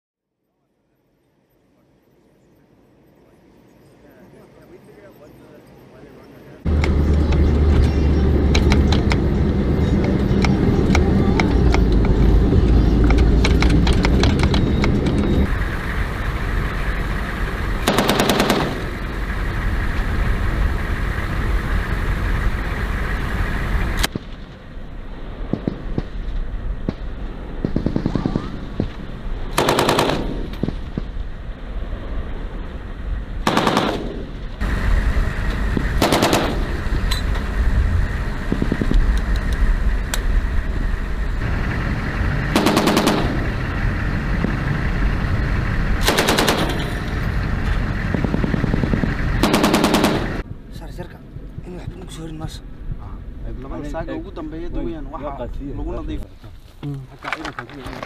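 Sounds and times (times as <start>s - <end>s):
vehicle engine running: 6.6s - 24.2s, 27.1s - 50.4s
machine gun automatic fire: 17.8s - 19.0s, 27.6s - 28.6s, 29.5s - 30.8s, 33.4s - 34.4s, 36.0s - 36.8s, 42.5s - 43.6s, 46.0s - 47.1s, 48.2s - 50.4s.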